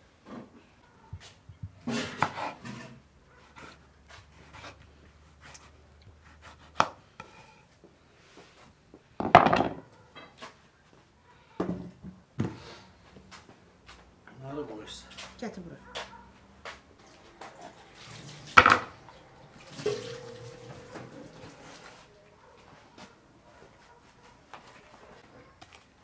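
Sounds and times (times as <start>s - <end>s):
knife slicing tomato: 1.8s - 7.6s.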